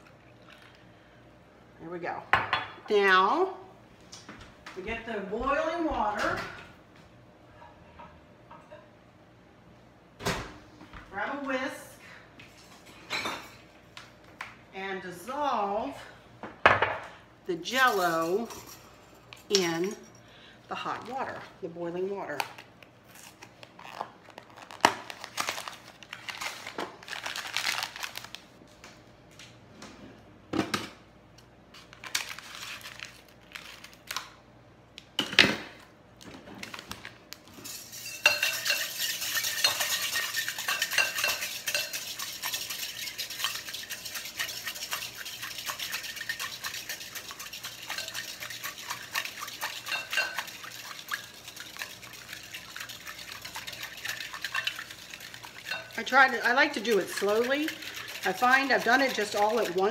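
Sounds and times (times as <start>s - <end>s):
whisk stirring in glass bowl: 37.7s - 59.9s.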